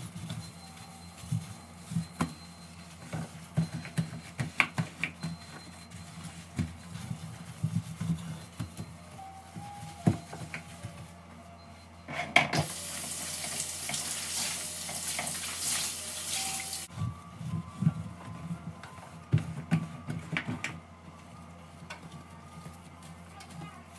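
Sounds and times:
kitchen tap running: 0:12.6 - 0:16.9
sponge scrubbing glass hob: 0:12.6 - 0:16.9.

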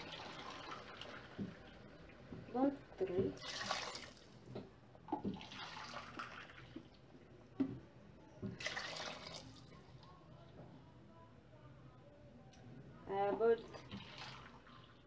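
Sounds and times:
water pouring and splashing: 0:00.0 - 0:04.4, 0:05.1 - 0:06.9, 0:08.5 - 0:09.7, 0:13.6 - 0:15.0.

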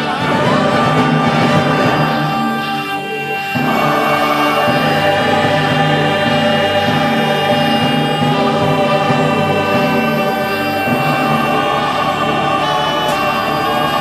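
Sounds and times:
choir singing sustained chords: 0:00.0 - 0:14.0.

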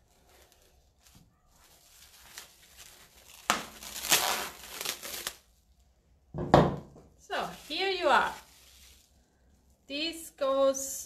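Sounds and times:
cling film crinkling and tearing: 0:00.0 - 0:05.8, 0:07.3 - 0:09.8.

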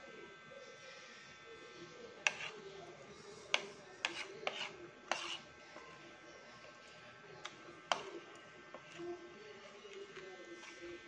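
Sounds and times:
cutlery scraping and clinking plate: 0:02.2 - 0:02.6, 0:03.5 - 0:06.0, 0:07.4 - 0:09.0.

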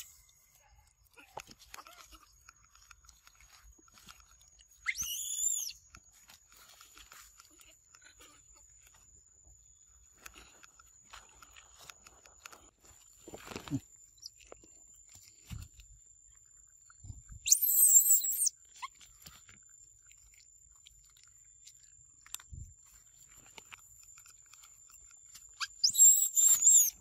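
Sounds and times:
monkey shrieking: 0:04.8 - 0:05.8, 0:17.5 - 0:18.5, 0:25.6 - 0:27.0.

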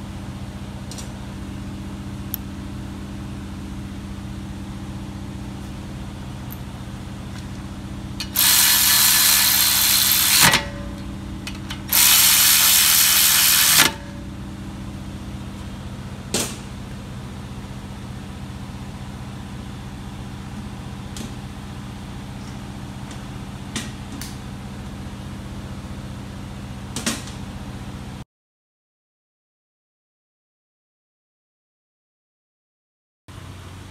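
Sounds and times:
steady low hum: 0:00.0 - 0:28.2
electric ratchet running: 0:08.2 - 0:11.0, 0:11.7 - 0:14.1.

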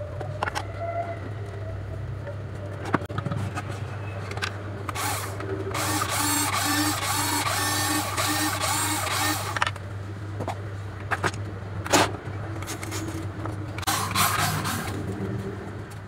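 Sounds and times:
toy car motors whining: 0:04.9 - 0:09.7, 0:13.8 - 0:15.0.

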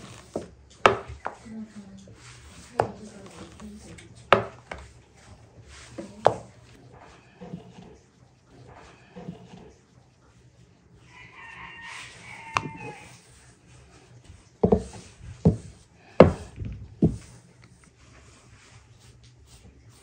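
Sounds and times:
rolling pin knocking on wooden board: 0:00.2 - 0:01.4, 0:02.7 - 0:03.6, 0:04.3 - 0:04.9, 0:06.0 - 0:06.6, 0:14.6 - 0:17.3
rooster crowing: 0:11.0 - 0:13.4.

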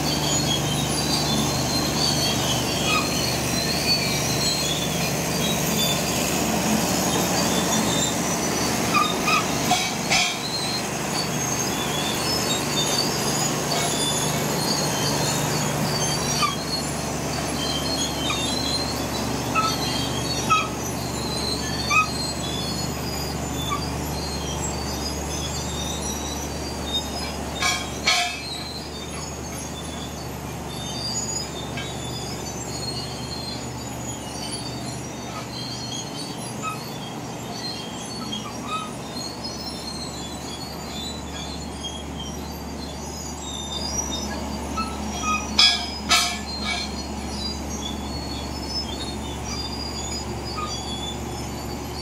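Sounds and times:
bulldozer diesel engine under load: 0:00.0 - 0:52.0
steel tracks squeaking and clanking: 0:00.0 - 0:52.0
sharp metallic knocks: 0:09.0 - 0:11.2, 0:27.6 - 0:28.8, 0:44.8 - 0:47.1.

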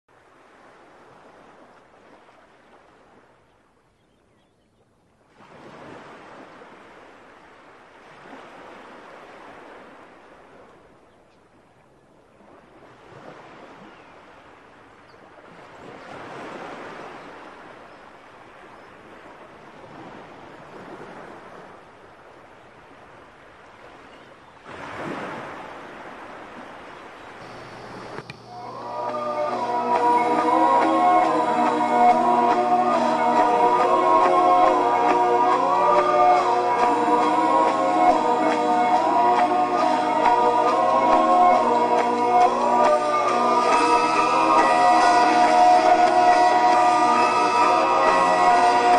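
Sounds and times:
ocean waves washing in: 0:00.1 - 0:03.8, 0:05.2 - 0:48.9.

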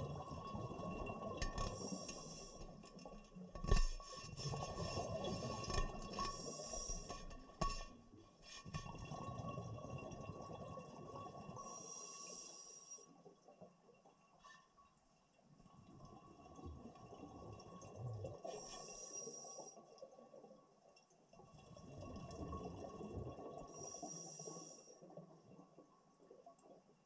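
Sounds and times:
regulator breath hiss: 0:11.7 - 0:13.0.

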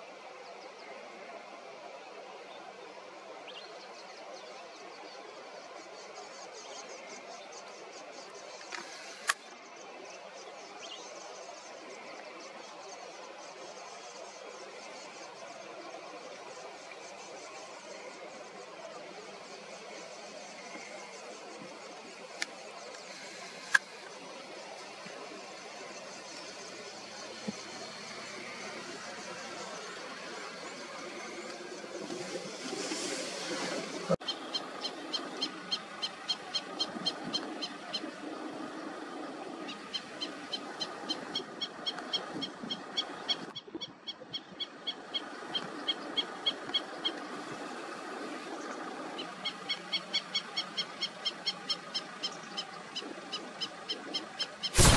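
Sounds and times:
steady hiss: 0:05.4 - 0:34.2.

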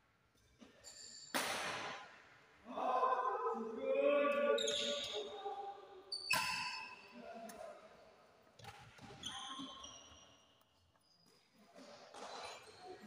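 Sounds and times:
shoes squeaking on court floor: 0:06.1 - 0:07.2, 0:08.6 - 0:13.0.

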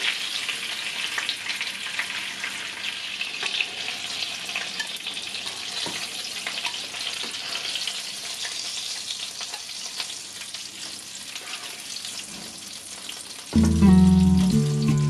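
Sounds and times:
oil sizzling in frying pan: 0:00.0 - 0:15.0
loud music: 0:13.6 - 0:15.0.

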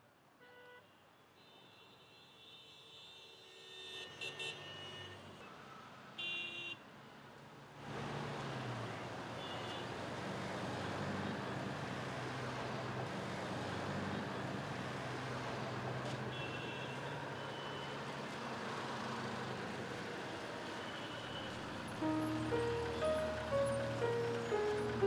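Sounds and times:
street traffic: 0:00.0 - 0:25.0
heavy vehicle engine running: 0:21.5 - 0:25.0.

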